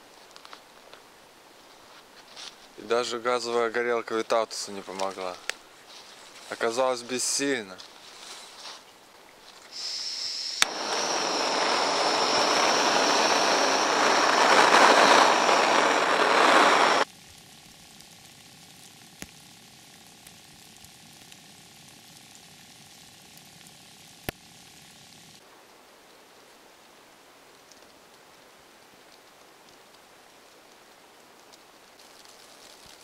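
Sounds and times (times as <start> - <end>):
gas hissing with thin whistle: 9.6 - 17.1
gas torch burning hiss: 9.7 - 19.4
torch igniter click: 10.4 - 17.0.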